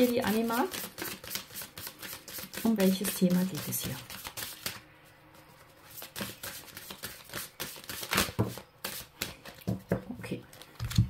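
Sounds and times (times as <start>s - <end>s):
cards being shuffled: 0.0s - 4.8s, 5.8s - 11.0s.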